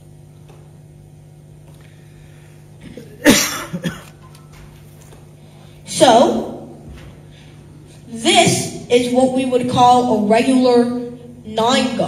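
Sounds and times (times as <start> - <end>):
low room hum: 0.0 - 12.0
person coughing: 2.8 - 4.2.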